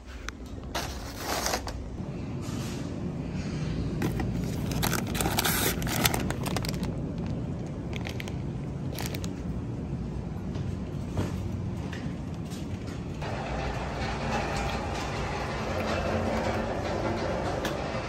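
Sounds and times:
low background hum: 0.0s - 18.0s
plastic bag crinkling: 4.4s - 9.4s.

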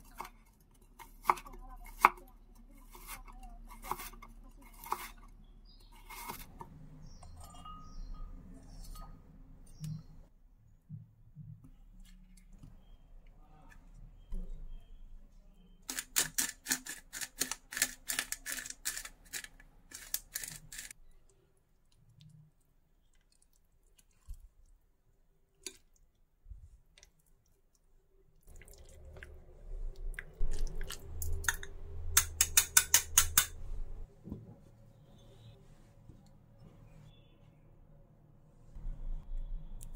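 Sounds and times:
metal spoon scraping avocado: 15.9s - 21.0s.

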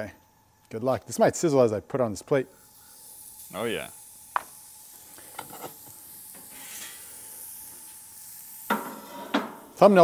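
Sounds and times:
steak sizzling in pan: 2.6s - 10.0s.

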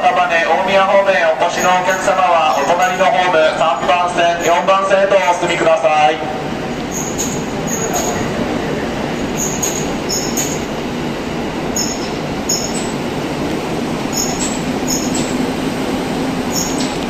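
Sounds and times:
train cars rumbling past: 0.0s - 17.0s
train wheel squeals: 1.5s - 3.0s, 6.8s - 8.4s, 9.1s - 10.7s, 11.7s - 13.0s, 14.1s - 15.4s, 16.4s - 17.0s.

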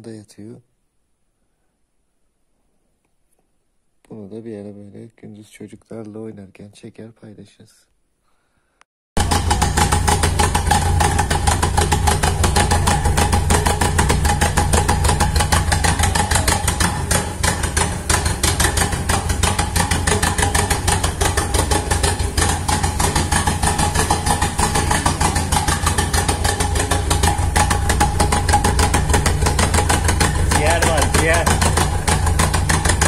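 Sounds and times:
car engine idling: 9.2s - 33.0s.

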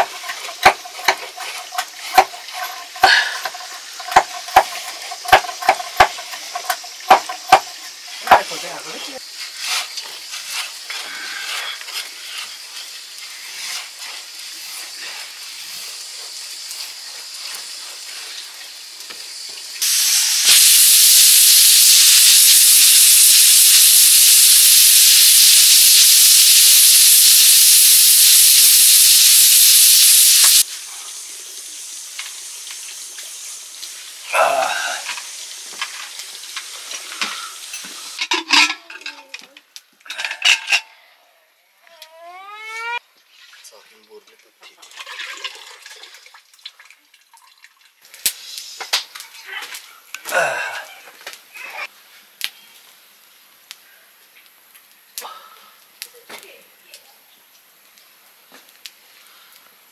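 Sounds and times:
stirring clicks and scrapes: 0.0s - 8.6s
loud even hiss: 0.0s - 38.3s, 48.1s - 49.3s
food sizzling in a pan: 0.0s - 39.3s, 48.0s - 59.9s.

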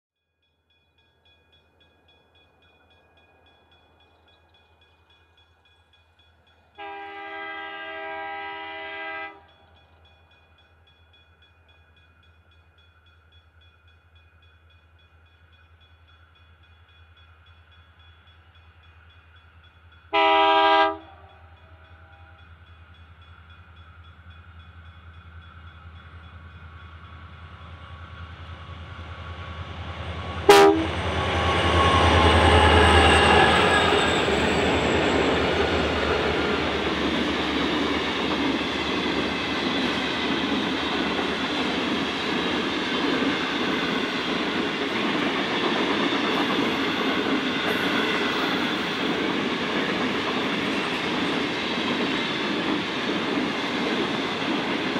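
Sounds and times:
freight train engine and rail noise: 0.6s - 54.9s
locomotive horn: 6.8s - 9.5s, 20.1s - 22.4s, 30.4s - 34.1s.

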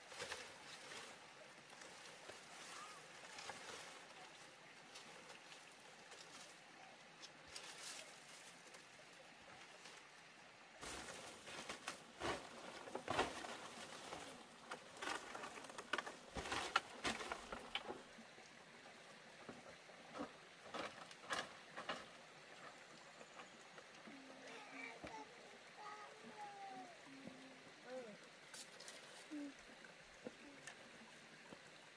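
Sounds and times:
leaves and twigs crackling: 0.0s - 10.2s, 10.8s - 18.0s.

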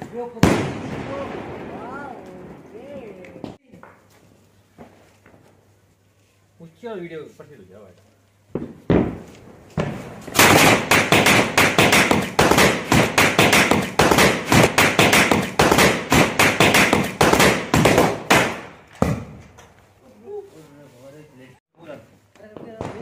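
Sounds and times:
firecrackers banging: 0.0s - 4.0s, 8.5s - 19.7s, 22.4s - 23.0s.

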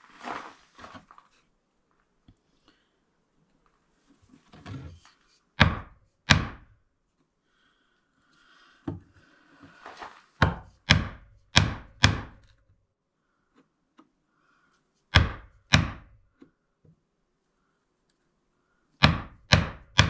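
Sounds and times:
soft scraping: 0.0s - 1.5s, 9.2s - 10.4s
chisel struck into wood: 5.6s - 6.7s, 10.4s - 12.5s, 15.1s - 16.2s, 19.0s - 20.0s.

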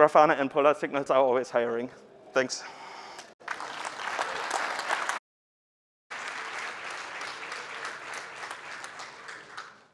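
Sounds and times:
audience applauding: 3.4s - 5.2s, 6.1s - 9.9s.

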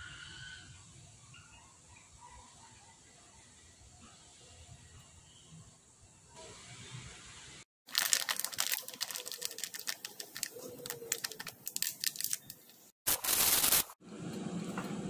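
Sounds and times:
aluminium foil being crumpled: 7.9s - 14.0s
plastic packet crinkling: 7.9s - 14.0s.

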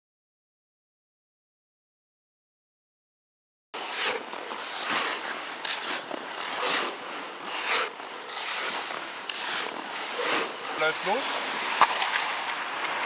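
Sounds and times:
skate blades scraping on ice: 3.8s - 13.0s.

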